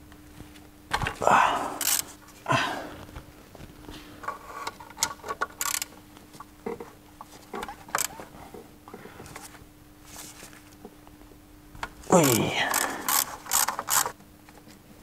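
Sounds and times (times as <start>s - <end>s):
faint steady hum: 0.0s - 15.0s
ratchet clicking and clinking: 5.6s - 5.9s, 12.2s - 14.1s.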